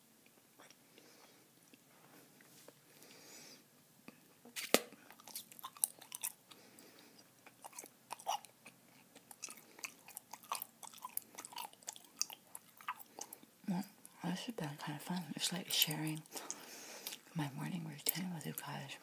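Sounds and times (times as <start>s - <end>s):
chewing bubble gum: 5.1s - 14.2s, 15.8s - 17.3s.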